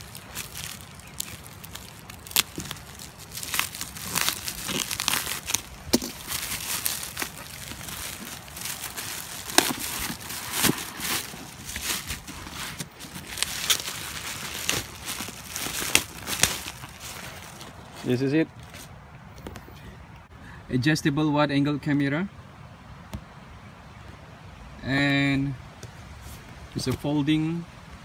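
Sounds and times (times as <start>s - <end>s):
plastic mailer being cut: 0.0s - 16.9s
plastic tearing: 0.0s - 17.8s
plastic crinkling and rustling: 0.0s - 18.9s.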